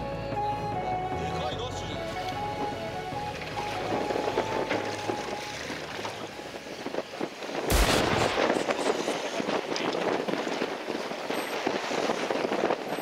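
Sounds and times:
wind rushing over microphone: 0:06.1 - 0:13.0
sudden loud blast: 0:07.7 - 0:08.8.

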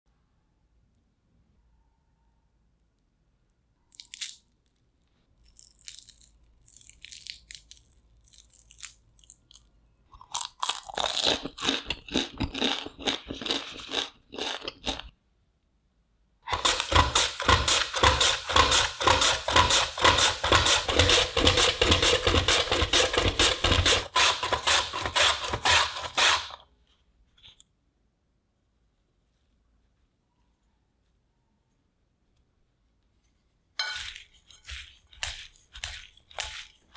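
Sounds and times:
crisp fried food crunching: 0:03.9 - 0:04.8, 0:05.4 - 0:15.2, 0:34.0 - 0:36.9
potato grating on slicer: 0:16.5 - 0:26.6, 0:33.8 - 0:36.9.

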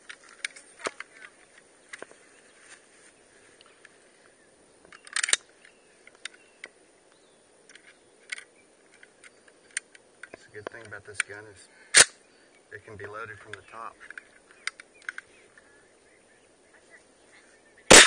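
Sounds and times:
light metallic clicks of a rifle: 0:04.8 - 0:15.7.

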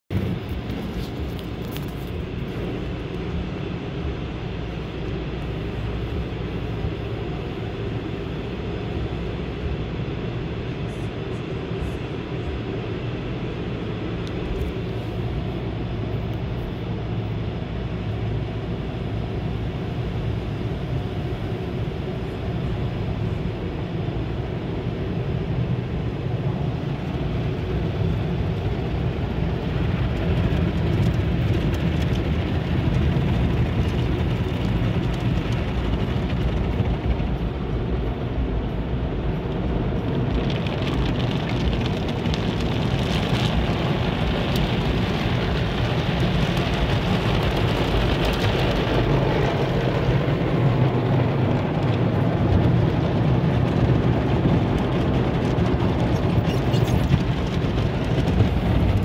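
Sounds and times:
car wash water spraying: 0:24.4 - 0:59.0.

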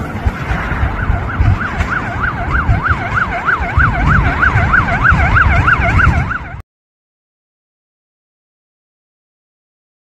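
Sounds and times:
emergency siren yelping: 0:00.0 - 0:06.6
steady low rumble: 0:00.0 - 0:06.6.

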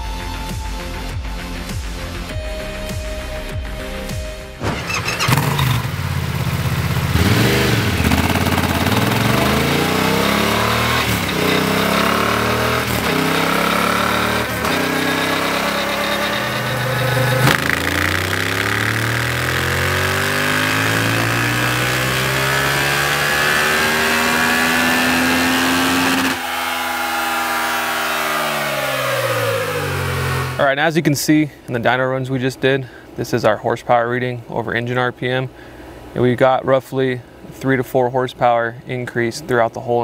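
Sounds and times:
motorcycle engine revving: 0:04.6 - 0:30.6.

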